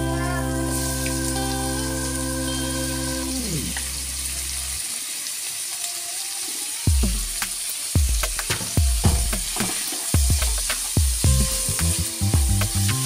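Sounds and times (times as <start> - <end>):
background music: 0.0 - 4.1, 8.0 - 13.0
meat sizzling in hot oil: 0.4 - 13.0
beat with deep drum hits: 6.9 - 13.0.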